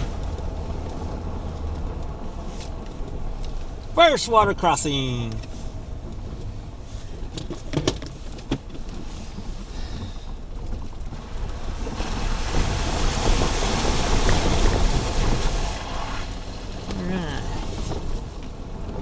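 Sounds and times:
low rumble of engine and tyres: 0.0s - 19.0s
vehicle knocking over ruts: 5.1s - 19.0s
tyres splashing through water: 10.3s - 19.0s.

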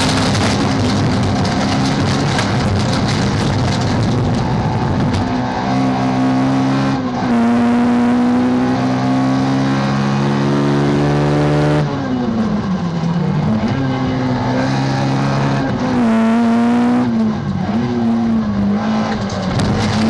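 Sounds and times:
gritty rattle of loose dirt: 0.0s - 5.4s, 19.0s - 20.0s
car engine revving high: 0.0s - 20.0s.

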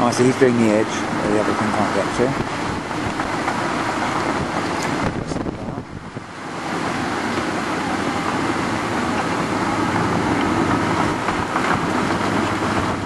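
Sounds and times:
excavator engine running: 0.0s - 13.0s
wind crackling on microphone: 0.0s - 13.0s.

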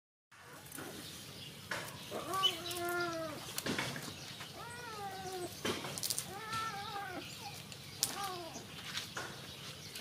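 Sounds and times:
cat meowing: 2.2s - 3.4s, 4.6s - 5.5s, 6.3s - 7.2s.

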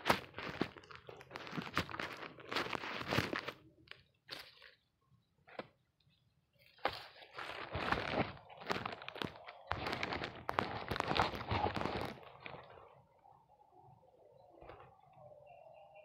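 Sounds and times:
plastic sack crunching and rustling: 0.0s - 3.6s, 6.8s - 12.8s.

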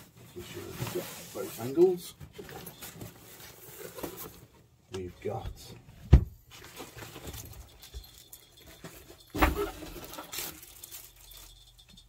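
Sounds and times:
nylon bag rustling: 6.5s - 11.8s.

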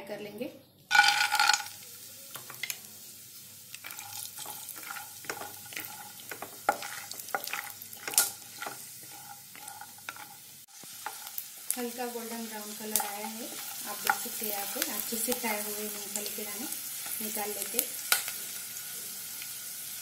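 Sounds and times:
peanuts sizzling in oil: 0.8s - 20.0s
peanuts clattering into oil: 0.9s - 18.4s
spatula scraping pan: 3.8s - 11.8s.

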